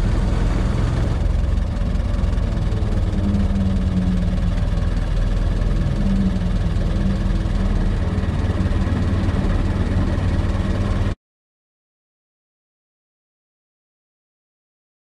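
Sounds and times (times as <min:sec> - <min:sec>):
old car engine running: 0:00.0 - 0:11.2.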